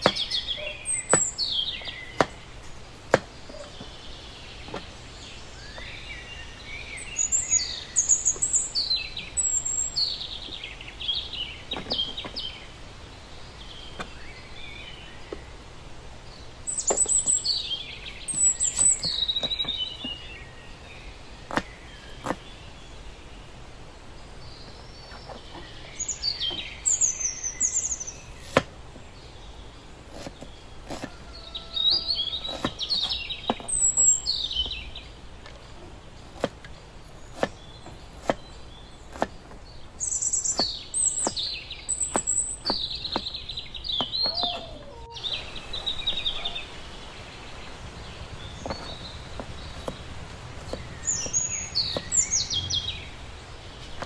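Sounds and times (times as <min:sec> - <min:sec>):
cleaver chopping on wooden board: 0:00.0 - 0:00.3, 0:01.0 - 0:02.4, 0:03.1 - 0:03.9, 0:21.5 - 0:22.5, 0:28.4 - 0:28.7, 0:30.1 - 0:33.7, 0:36.3 - 0:36.7, 0:37.3 - 0:39.6, 0:40.3 - 0:43.4, 0:48.6 - 0:52.2
birds chirping: 0:00.0 - 0:54.0.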